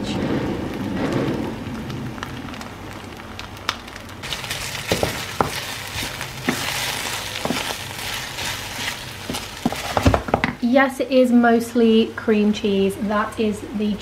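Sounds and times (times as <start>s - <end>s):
sauce sizzling in a frying pan: 0.7s - 10.5s
wooden spoon knocking a pan: 4.3s - 7.8s, 8.4s - 10.6s.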